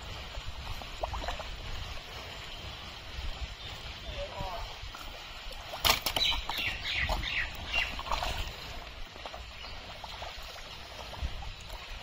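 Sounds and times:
mud squelching: 3.8 - 12.0.

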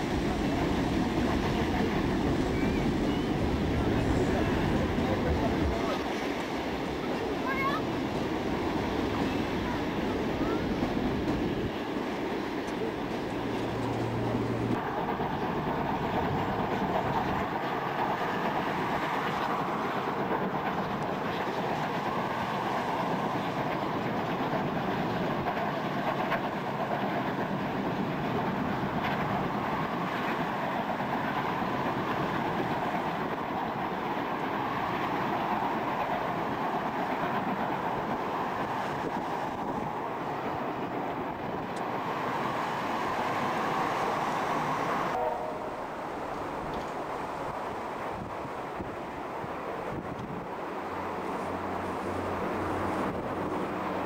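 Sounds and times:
steam train rumbling past: 0.0 - 54.0.

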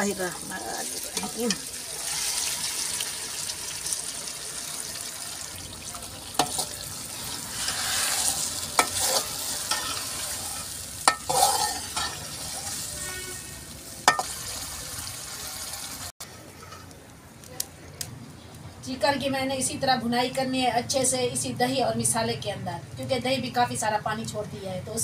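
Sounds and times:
chicken sizzling in hot oil: 0.0 - 16.1
spoon clinking against pot: 11.1 - 12.2, 14.1 - 14.3.

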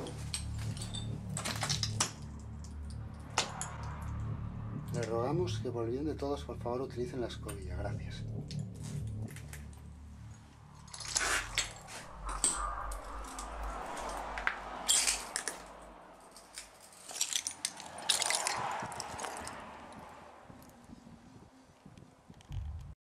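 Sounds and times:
low rumble: 0.0 - 23.0
sharp clicks and crackles: 10.8 - 20.8, 21.8 - 22.9
footsteps crunching over rubble: 16.3 - 22.8.

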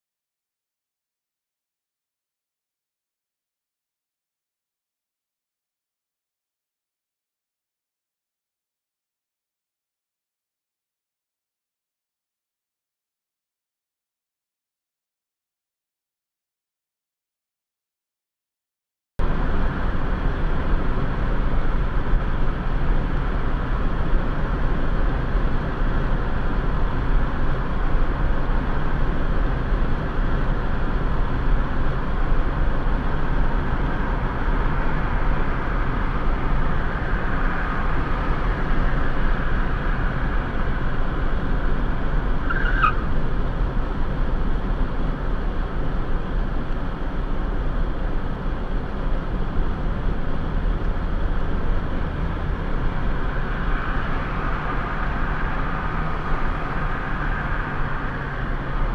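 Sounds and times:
car road and engine noise: 19.2 - 58.9.

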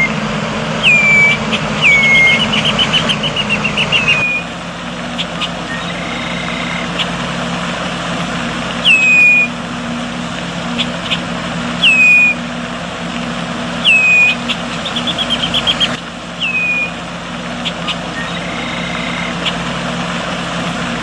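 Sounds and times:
bird chip notes: 0.0 - 7.2, 8.8 - 9.6, 10.7 - 12.5, 13.8 - 17.0, 17.6 - 19.7
bird whistled notes: 0.8 - 4.5, 5.2 - 7.1, 8.8 - 9.6, 11.8 - 12.4, 13.8 - 17.0, 17.6 - 19.6.

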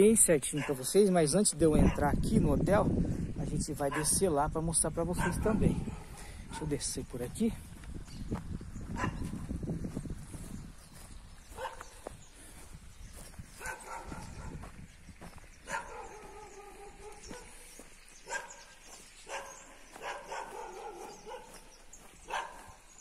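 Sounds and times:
dogs barking: 0.4 - 1.1, 1.7 - 2.2, 3.9 - 4.2, 5.1 - 6.8, 8.9 - 9.4, 11.5 - 12.1, 13.5 - 14.7, 15.6 - 23.0.

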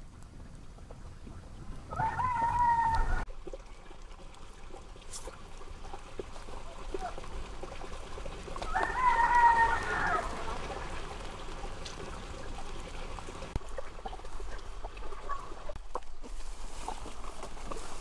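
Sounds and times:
faint trickle of water: 0.2 - 15.8
rooster crowing: 1.9 - 3.3, 8.6 - 10.6.

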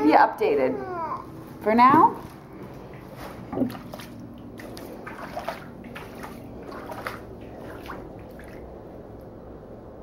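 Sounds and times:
bare feet splashing through water: 2.9 - 8.8.

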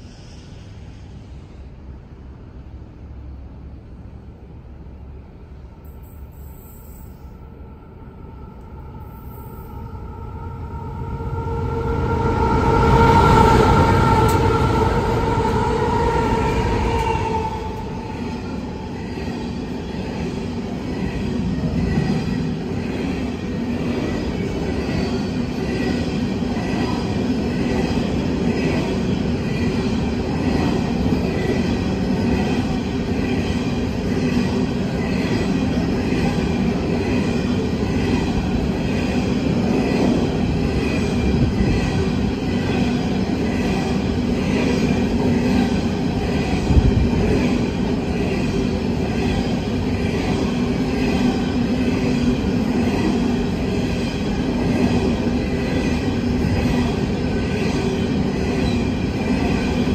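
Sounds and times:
locomotive whine: 5.8 - 26.9
train wheels rumbling and clattering: 11.6 - 59.9.

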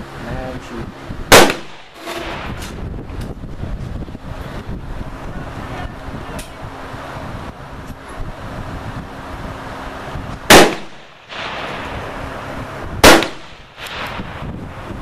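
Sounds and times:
rifle shots with echo: 1.3 - 2.5, 10.5 - 11.8, 13.0 - 14.3.

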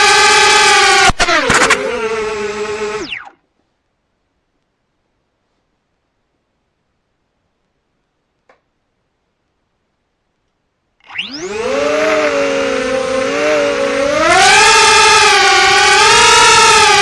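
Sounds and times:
quadcopter motors whining: 0.0 - 3.4, 11.0 - 17.0.

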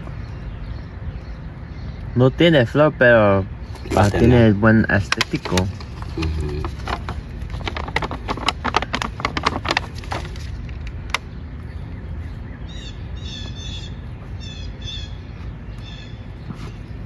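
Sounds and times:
songbird chirping: 0.0 - 17.0
crackling clicks and rustles: 3.7 - 11.8.

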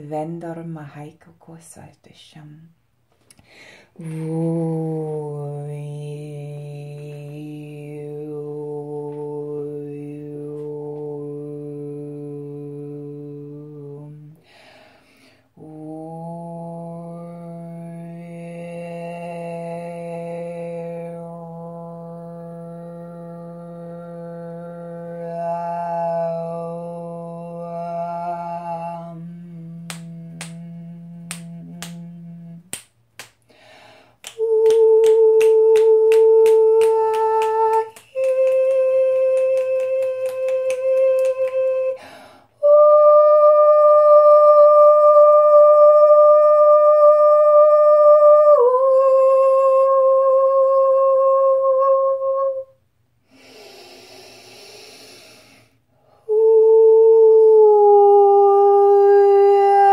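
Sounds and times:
woman singing long vowel notes: 3.9 - 14.6, 15.5 - 52.8, 53.4 - 59.9
breathy exhale: 14.4 - 15.5, 33.5 - 34.2, 42.0 - 42.5, 53.3 - 56.2
low hum: 15.6 - 33.2.

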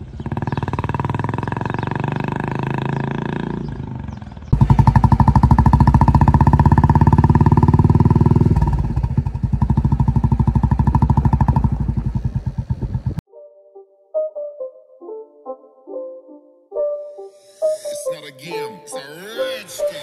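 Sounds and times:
motorcycle engine thumping: 0.0 - 13.2.

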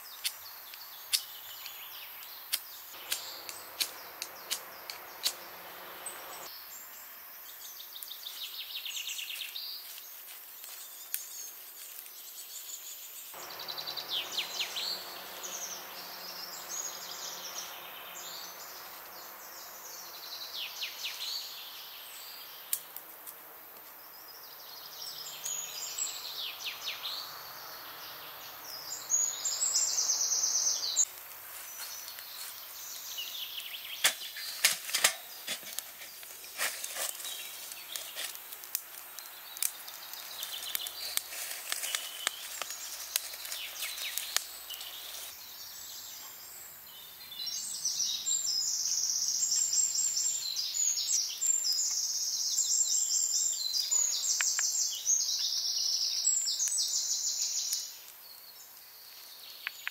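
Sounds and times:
birds singing and chirping: 0.0 - 22.9, 24.0 - 31.1, 39.1 - 59.9
sharp clicks: 2.5 - 5.6.

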